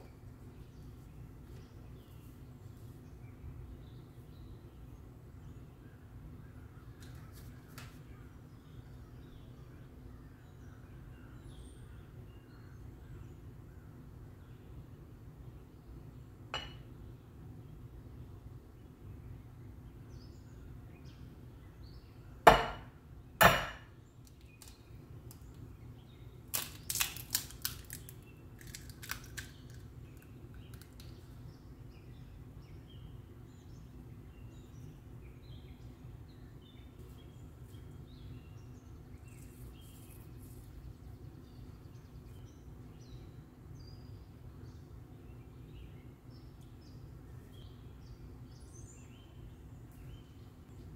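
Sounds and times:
faint steady hum: 0.0 - 50.9
egg cracking on glass bowl: 26.5 - 31.2.

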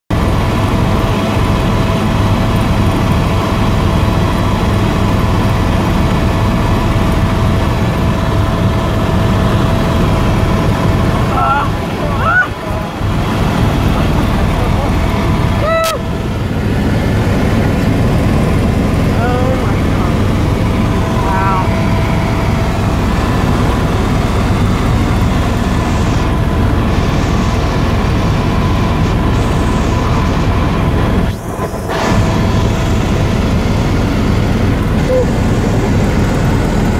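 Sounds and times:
constant whine: 0.1 - 36.9
helicopter rotor and engine drone: 0.1 - 36.9.

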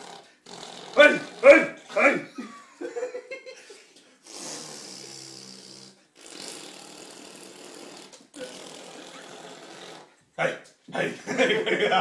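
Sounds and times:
person blowing raspberries: 0.0 - 2.2, 4.2 - 10.2.

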